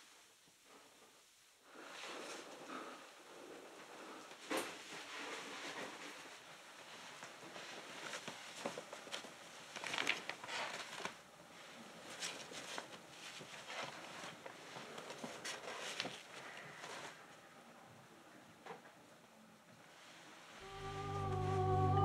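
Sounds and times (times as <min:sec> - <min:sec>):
paper crinkling: 0:08.0 - 0:11.2.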